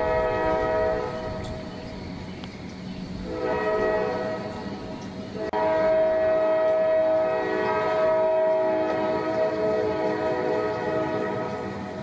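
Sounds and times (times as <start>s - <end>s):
locomotive air horn: 0.0s - 1.6s, 3.2s - 4.6s, 5.4s - 11.9s.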